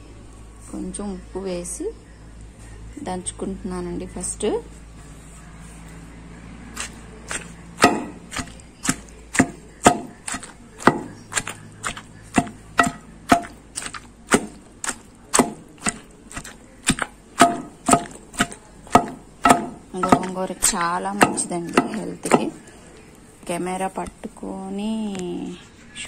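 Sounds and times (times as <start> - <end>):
pestle pounding in stone mortar: 6.8 - 22.6.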